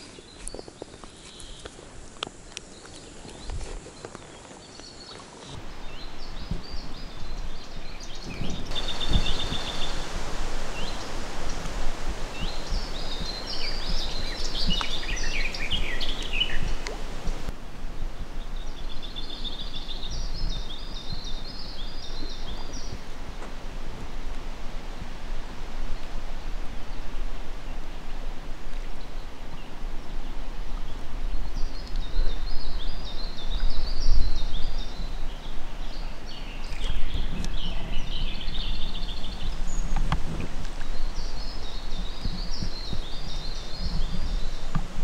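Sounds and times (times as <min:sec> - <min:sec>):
small birds chirping: 0:00.0 - 0:01.8, 0:02.4 - 0:17.5, 0:40.8 - 0:45.0
outdoor background noise: 0:00.0 - 0:45.0.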